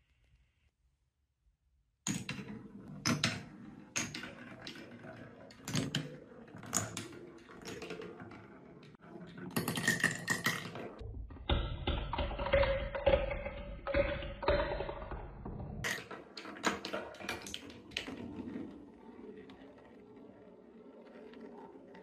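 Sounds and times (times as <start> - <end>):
marble rolling on wooden rails: 2.1 - 22.0
marble whirring in plastic tube: 15.9 - 22.0.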